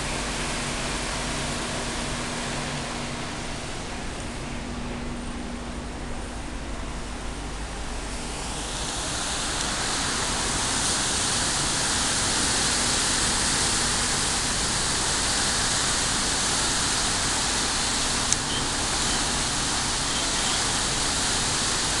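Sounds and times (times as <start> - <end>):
low engine hum: 0.0 - 22.0
churned seawater rushing: 7.2 - 22.0.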